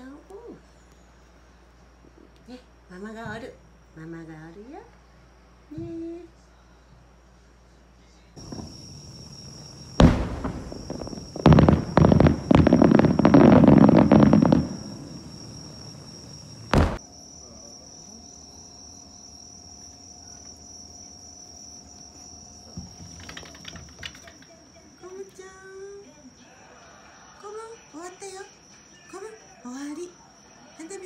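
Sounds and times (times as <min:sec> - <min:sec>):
crackling bangs: 0:08.4 - 0:17.0
fireworks exploding: 0:08.4 - 0:17.0.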